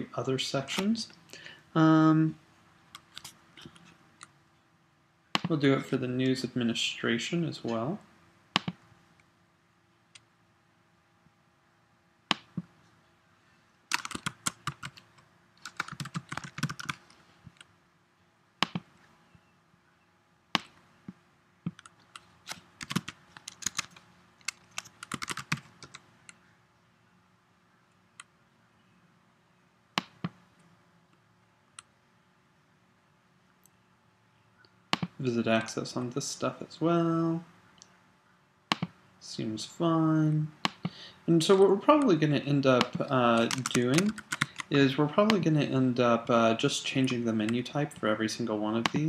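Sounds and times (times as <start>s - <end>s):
typing on computer keyboard: 13.9s - 15.0s, 15.6s - 17.0s, 22.5s - 26.0s, 42.8s - 44.7s.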